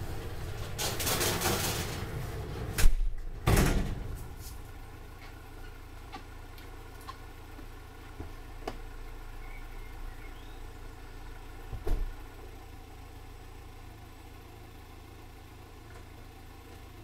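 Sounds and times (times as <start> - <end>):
car engine idling: 0.0 - 17.0
car door thump: 11.7 - 12.1.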